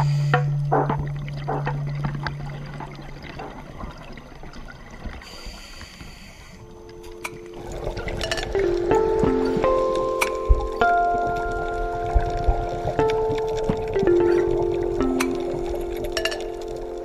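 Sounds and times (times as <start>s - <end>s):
watery crackle and trickling: 0.0s - 17.0s
soft instrumental music: 6.6s - 17.0s
chime-like music: 6.8s - 17.0s.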